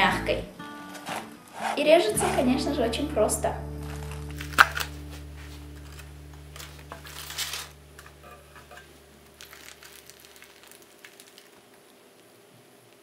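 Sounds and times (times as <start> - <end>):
knife cutting baked pumpkin: 1.6 - 2.4
low hum: 2.4 - 10.2
aluminium foil crinkling: 3.8 - 12.4.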